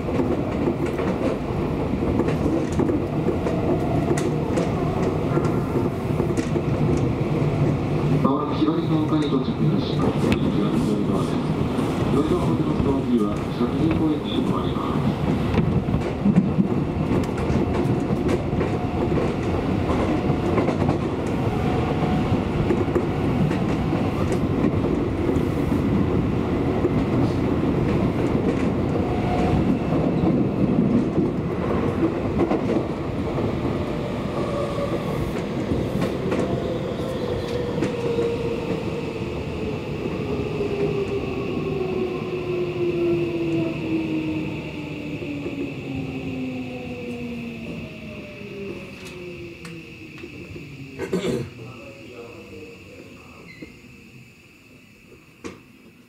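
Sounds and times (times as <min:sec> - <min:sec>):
rail clicks: 0:00.0 - 0:39.0, 0:48.6 - 0:51.0, 0:55.1 - 0:55.6
train wheels rumbling on rail: 0:00.0 - 0:56.0.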